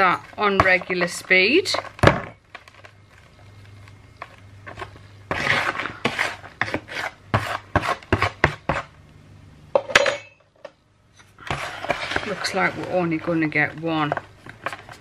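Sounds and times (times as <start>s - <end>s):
spoon scraping mixture in mould: 4.2s - 9.0s, 11.2s - 15.0s.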